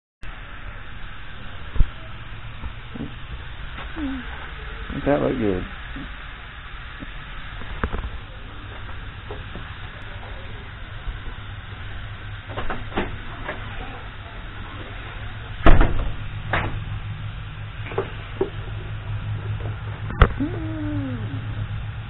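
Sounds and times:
steady low hum: 0.2s - 22.0s.

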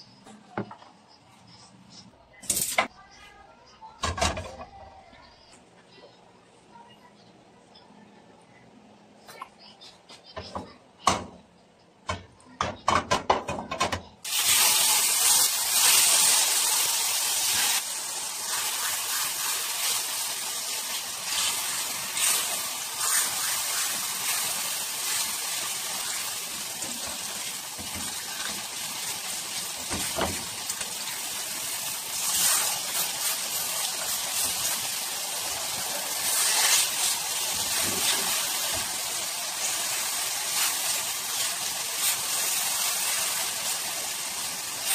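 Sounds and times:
meat sizzling in frying pan: 14.3s - 44.9s.

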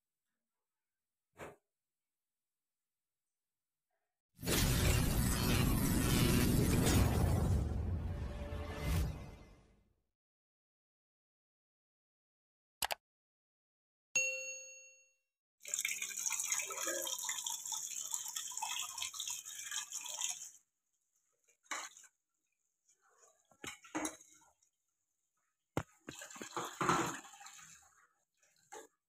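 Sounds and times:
tap water running into sink: 15.6s - 20.6s, 25.8s - 28.9s
plates clattering in sink: 23.6s - 24.4s, 26.3s - 27.6s.

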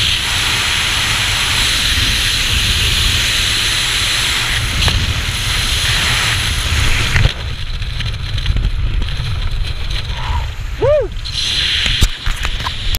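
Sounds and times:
wind rushing over helmet camera: 0.0s - 12.9s
person calling out: 10.2s - 11.1s.

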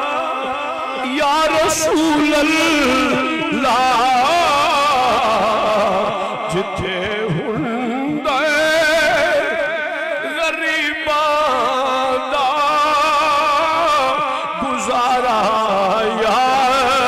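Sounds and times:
man singing into a microphone: 0.0s - 17.0s.

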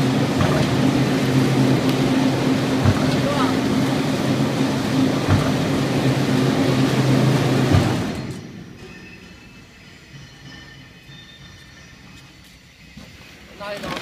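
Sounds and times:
machine low hum: 0.0s - 9.7s
lathe mechanical noise: 0.0s - 13.4s
machine knocks: 0.3s - 0.9s, 2.8s - 3.4s, 5.2s - 5.8s, 7.6s - 8.2s.

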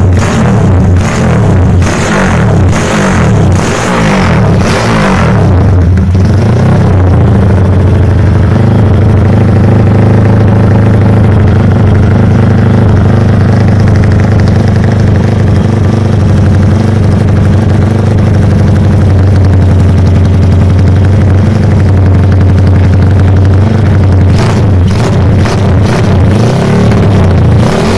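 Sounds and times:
motorcycle engine fast idle: 7.4s - 24.2s.

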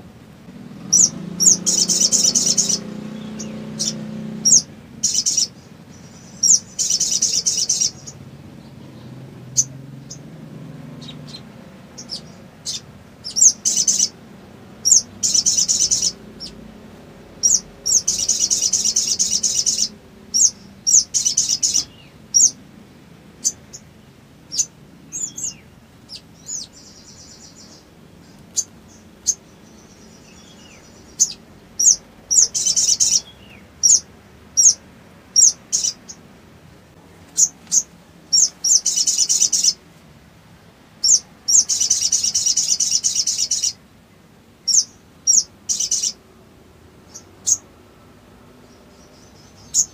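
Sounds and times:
bird chirping: 0.0s - 36.3s, 37.2s - 39.8s, 40.9s - 43.8s, 44.6s - 46.2s, 47.0s - 49.9s
soft buzzy bird trills: 0.0s - 36.3s, 37.2s - 39.8s, 40.6s - 43.8s, 44.6s - 46.3s
bird chattering trills: 0.8s - 14.2s, 14.8s - 16.7s, 17.3s - 22.6s, 23.4s - 23.9s, 24.5s - 36.3s, 37.3s - 39.8s, 41.0s - 43.8s, 44.6s - 46.2s, 47.1s - 47.7s, 49.0s - 49.9s.

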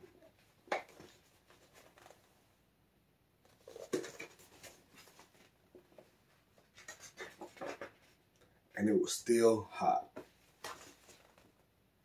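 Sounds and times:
book pages rustling: 0.6s - 2.4s, 3.4s - 8.2s, 10.2s - 11.7s.

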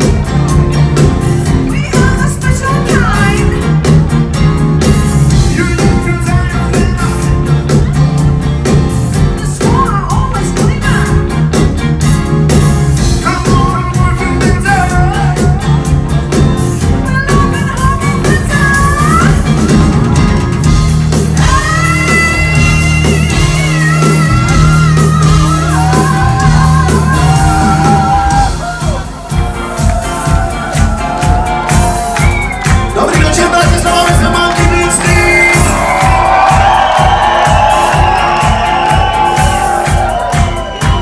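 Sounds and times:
bass line: 0.0s - 41.0s
live band playing up-tempo music: 0.0s - 41.0s
person singing: 5.4s - 7.6s, 13.2s - 16.0s, 32.8s - 35.9s.

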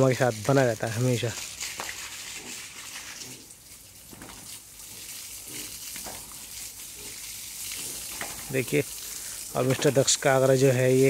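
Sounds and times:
water spray hissing: 0.0s - 11.0s
pigs grunting: 2.1s - 3.7s, 4.3s - 10.0s.

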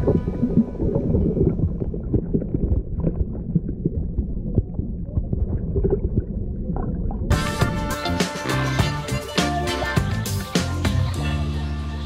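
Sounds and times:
bubbles clicking and knocking: 0.0s - 7.3s
muffled underwater rumble: 0.0s - 7.4s.

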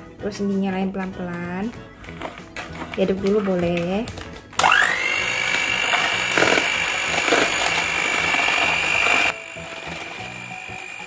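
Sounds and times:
electric hand mixer whining: 4.6s - 11.0s.

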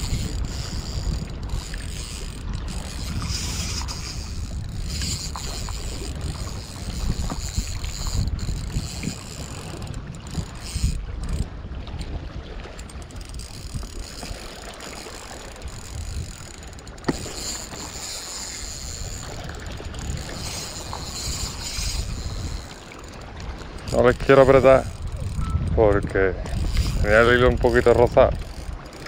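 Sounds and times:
fishing reel being cranked: 0.0s - 11.5s, 12.8s - 29.0s
wind buffeting microphone: 0.0s - 29.0s.

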